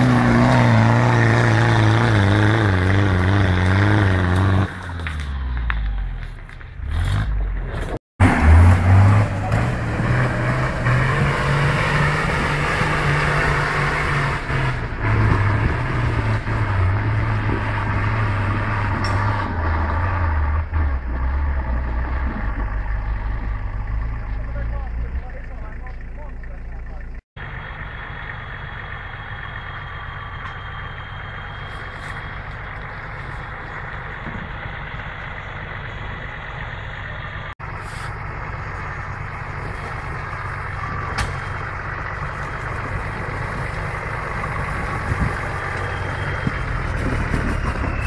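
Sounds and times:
second engine revving hard: 0.0 - 4.8, 8.2 - 22.7
engine labouring under load: 0.0 - 48.0.

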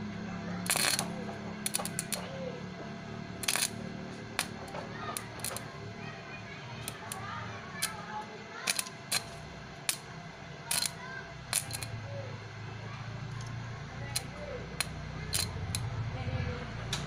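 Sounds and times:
welding arc cracking: 0.6 - 2.3, 3.3 - 5.8, 6.8 - 10.1, 10.7 - 12.0, 13.4 - 16.0.

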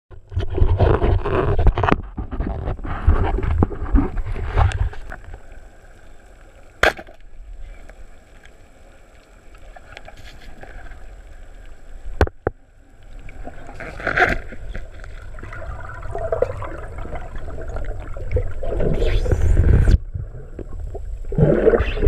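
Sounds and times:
underwater rushing and bubbling: 0.1 - 22.0
steady water hiss: 2.9 - 22.0.

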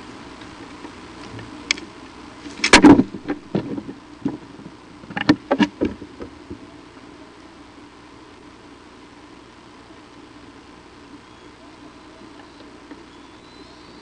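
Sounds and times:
steady faint hiss: 0.0 - 14.0
sticks cracking and rustling: 0.4 - 4.4.

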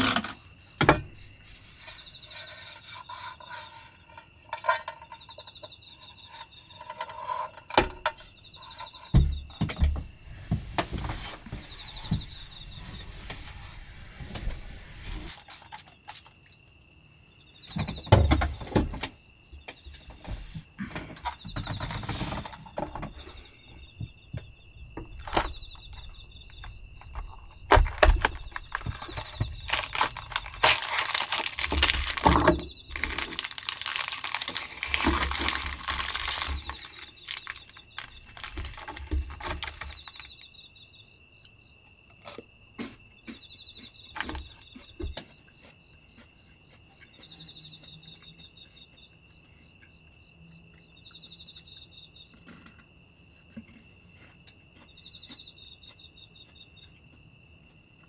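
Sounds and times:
crickets chirping: 0.0 - 58.0
foil bag crinkling and tearing: 27.3 - 40.3
cardboard box handling: 27.7 - 40.2.

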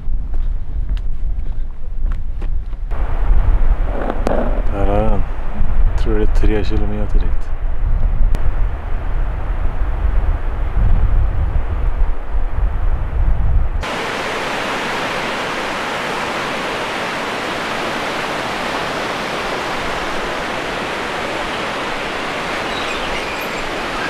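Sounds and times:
river rushing over rocks: 13.8 - 24.0.

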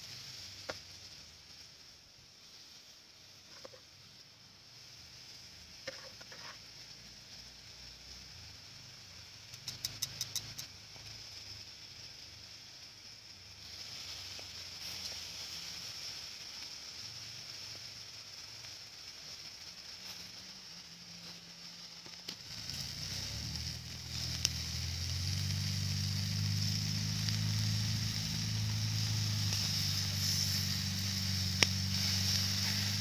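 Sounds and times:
meat sizzling on a grill: 0.0 - 33.0
sharp clicks: 9.5 - 10.7.

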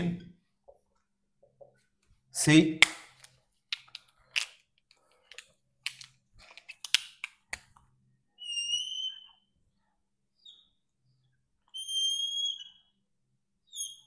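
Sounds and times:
marker squeaking on whiteboard: 8.4 - 9.5, 10.4 - 13.0, 13.7 - 14.0.

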